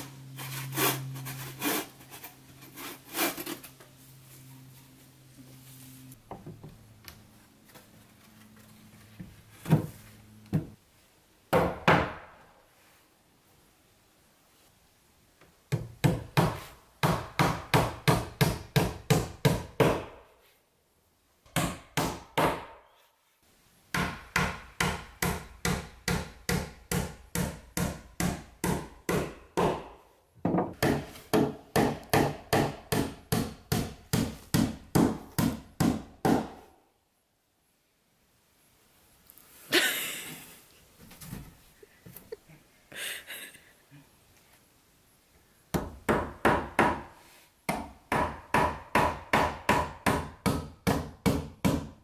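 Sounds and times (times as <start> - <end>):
hammer nailing wooden boards: 11.5 - 12.4, 15.7 - 20.2, 21.5 - 22.8, 23.9 - 36.7, 45.8 - 52.0.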